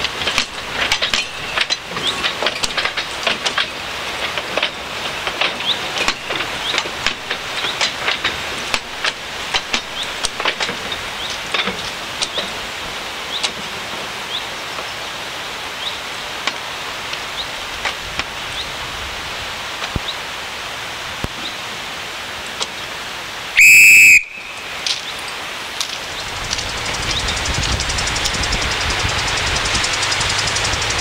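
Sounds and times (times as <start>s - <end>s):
outdoor hiss: 0.0s - 31.0s
shrill whistle blast: 23.6s - 24.7s.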